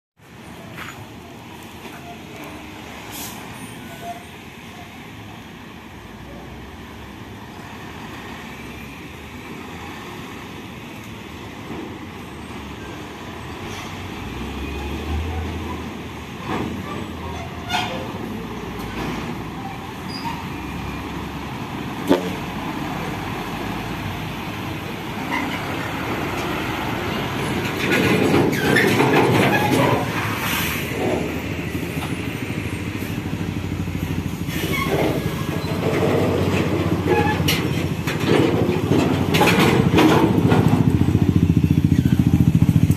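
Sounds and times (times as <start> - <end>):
diesel engine rumble: 0.2 - 42.9.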